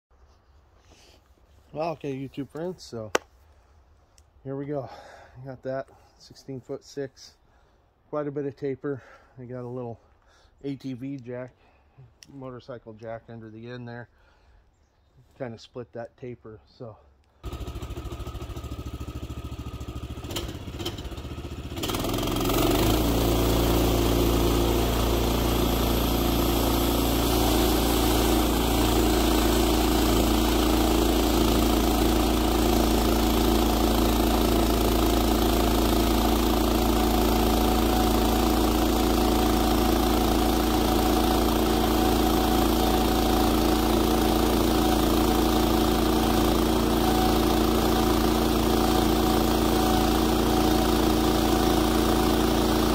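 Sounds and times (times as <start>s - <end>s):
sawmill engine running: 17.4s - 52.9s.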